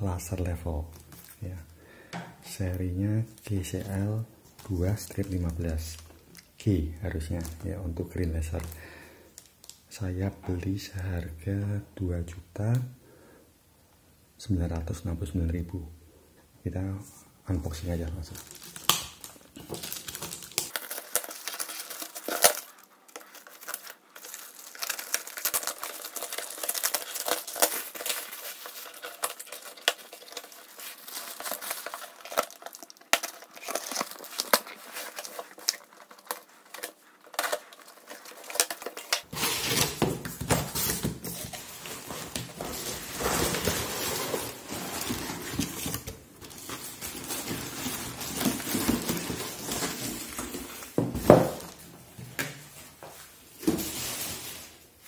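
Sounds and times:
plastic mailer bag crinkling: 0:18.1 - 0:51.8
tape and plastic film tearing: 0:18.3 - 0:51.0.

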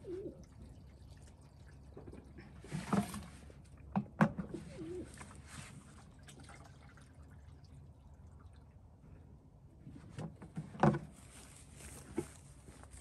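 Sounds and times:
water pouring from watering can: 0:05.1 - 0:08.8.

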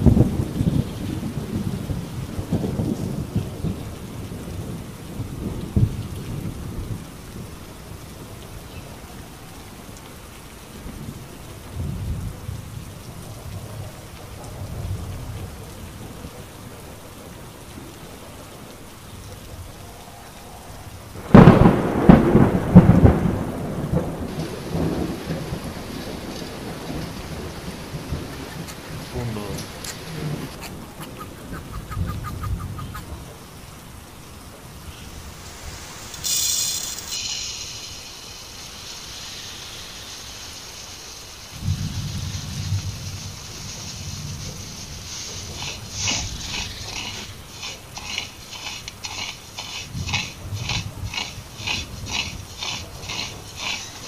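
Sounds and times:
loud thunderclap: 0:00.0 - 0:08.3, 0:21.1 - 0:31.0, 0:41.5 - 0:48.0
rolling thunder: 0:00.0 - 0:10.0, 0:10.6 - 0:48.4
steady rain: 0:00.0 - 0:54.0.

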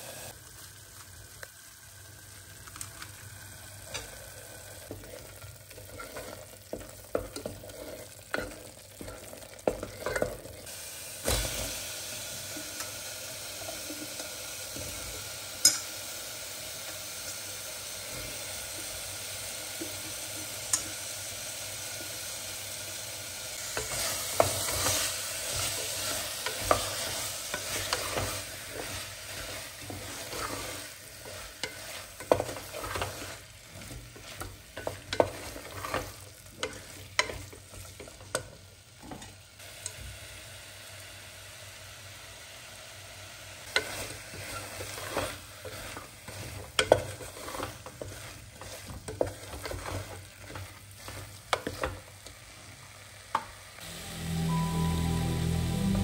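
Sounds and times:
spices sizzling in pot: 0:00.0 - 0:56.0
wooden spatula scraping pot: 0:04.9 - 0:10.6, 0:23.6 - 0:38.1, 0:43.7 - 0:52.1.

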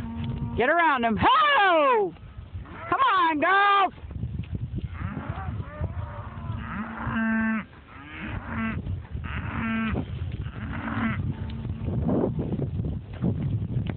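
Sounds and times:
cattle mooing: 0:04.9 - 0:11.9.

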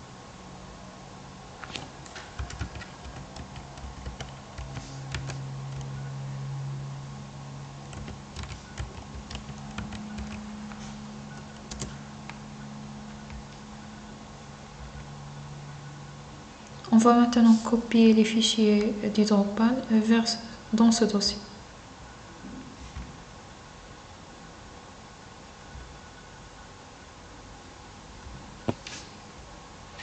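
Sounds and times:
low steady hum: 0:00.0 - 0:30.0
typing on a computer keyboard: 0:01.7 - 0:06.0, 0:07.9 - 0:10.8, 0:11.4 - 0:12.4.

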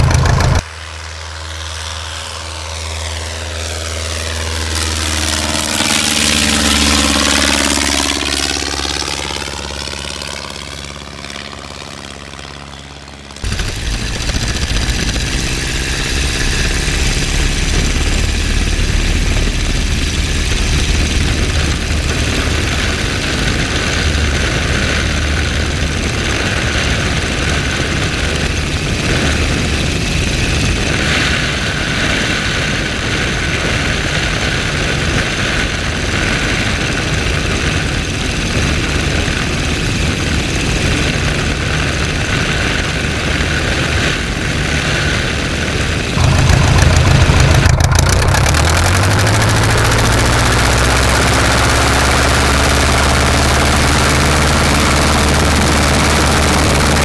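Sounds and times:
biplane engine and propeller: 0:00.0 - 0:57.0
wind rush: 0:13.4 - 0:37.4, 0:41.4 - 0:57.0.

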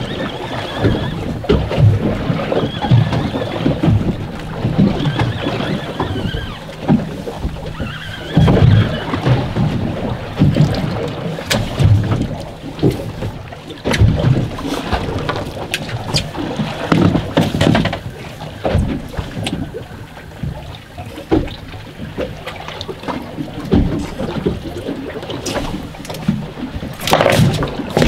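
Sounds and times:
wind on microphone: 0:00.0 - 0:22.1
water against boat hull: 0:00.0 - 0:28.0.

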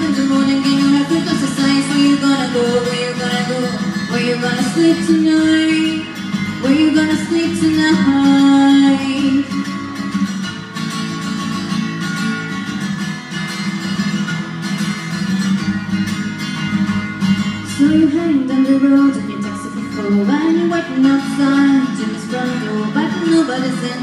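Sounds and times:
woman singing: 0:00.0 - 0:09.9, 0:17.6 - 0:24.0
acoustic guitar: 0:00.0 - 0:24.0.

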